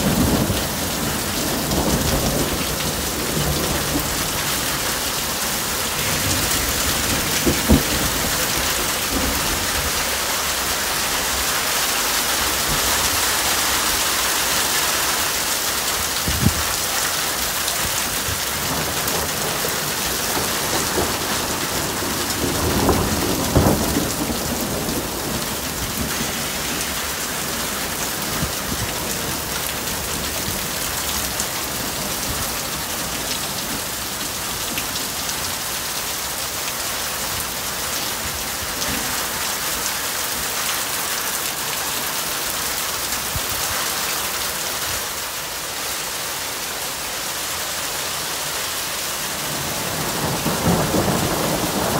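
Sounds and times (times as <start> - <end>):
heavy rain with hail: 0.0 - 51.9
thunder: 6.1 - 9.9, 18.3 - 27.0, 49.5 - 51.9.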